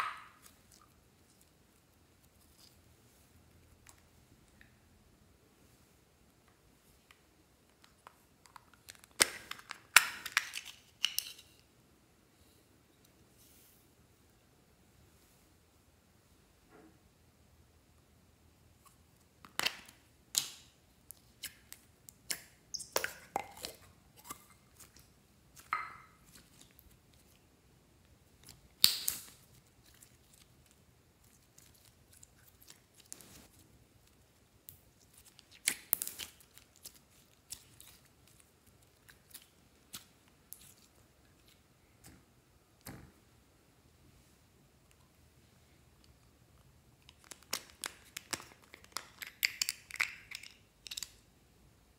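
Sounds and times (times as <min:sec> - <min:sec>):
slime popping and clicking: 0:28.8 - 0:29.3.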